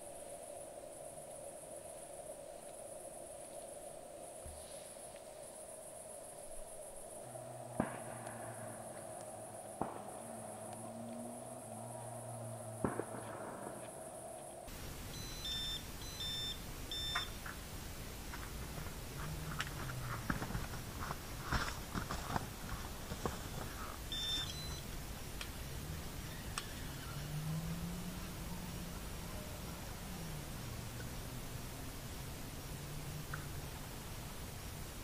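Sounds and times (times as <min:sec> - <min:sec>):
crickets chirping: 0:00.0 - 0:35.0
short electronic beeps: 0:15.1 - 0:17.4, 0:24.1 - 0:24.8
handling clicks and rustles: 0:16.9 - 0:25.6.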